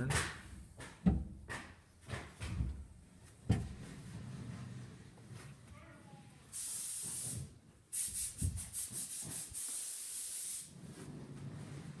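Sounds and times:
high rubbing hiss: 6.4 - 10.8.

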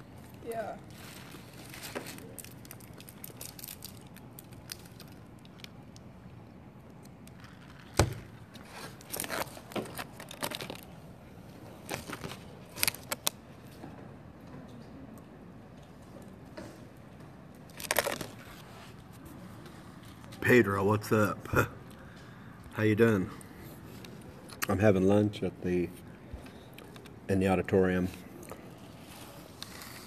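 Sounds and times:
chip bag crinkling: 0.2 - 5.8, 7.2 - 11.0, 11.8 - 13.4, 17.7 - 18.5.

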